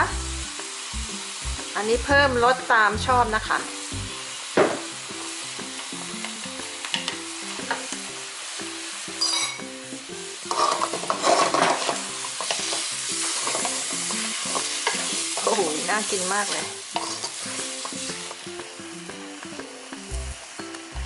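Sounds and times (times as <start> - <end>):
food sizzling in a wok: 0.0 - 21.0
wooden spatula scraping wok: 10.5 - 18.4.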